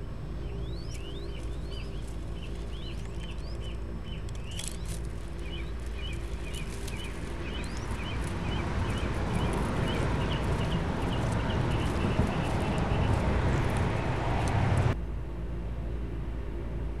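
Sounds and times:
steady low hum: 0.0 - 17.0
small birds chirping: 0.4 - 15.0
rustle of straw and feathers: 0.5 - 15.0.

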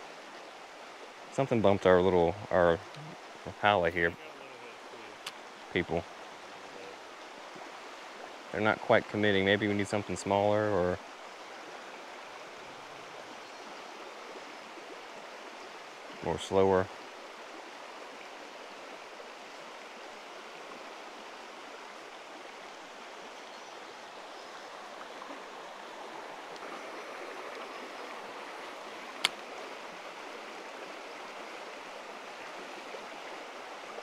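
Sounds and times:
river water rushing over rocks: 0.0 - 34.0
sharp click: 29.2 - 29.4.

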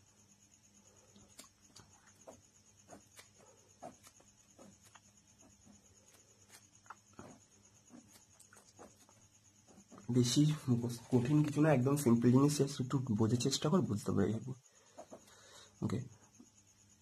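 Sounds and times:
pen scratching on paper: 2.1 - 11.5.

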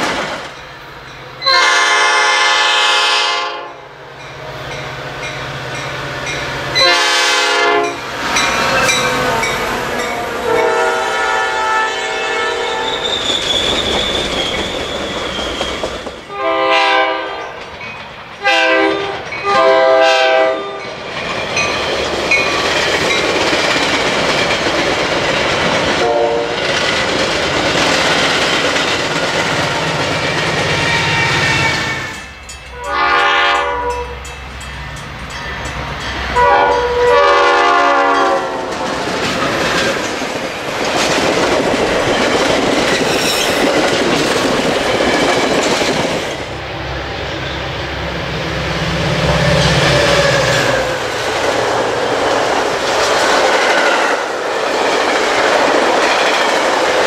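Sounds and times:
train wheels rumbling on rails: 0.0 - 3.4, 4.0 - 57.0
train horn blasts: 1.4 - 4.0, 6.8 - 8.0, 8.6 - 13.0, 16.3 - 17.5, 18.4 - 20.8, 26.0 - 26.6, 31.0 - 34.2, 36.3 - 38.9.

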